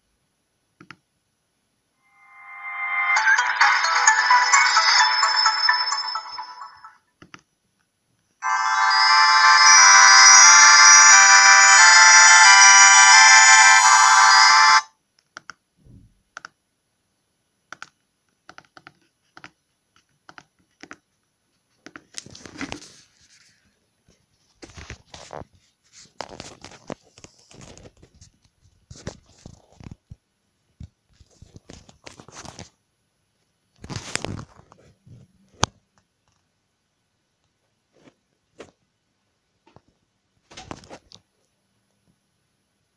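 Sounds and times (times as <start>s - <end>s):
phone message tone: 2.2s - 6.9s, 8.4s - 14.8s.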